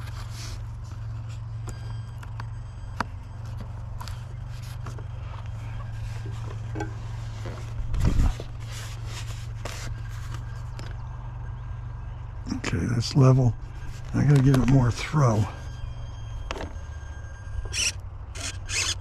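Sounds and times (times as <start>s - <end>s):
hands handling foam model plane: 0.0s - 11.0s, 13.8s - 15.0s
wind rumbling on microphone: 7.7s - 8.7s.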